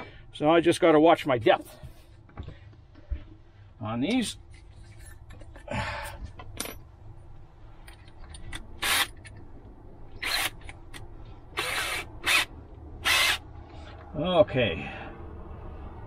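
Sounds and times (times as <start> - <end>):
cordless drill boring into wood: 8.8 - 9.1, 10.2 - 10.6, 11.6 - 13.4.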